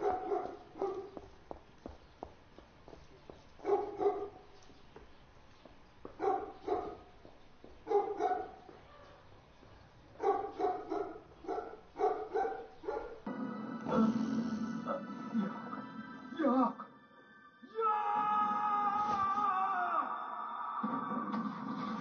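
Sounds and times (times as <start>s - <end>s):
dog barking: 0.0s - 1.2s, 3.6s - 4.5s, 6.2s - 7.1s, 7.8s - 9.3s, 10.2s - 13.3s.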